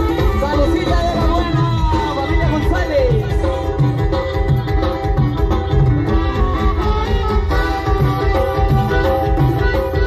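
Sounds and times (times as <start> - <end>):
sliding pitched melody: 3.5 - 10.0.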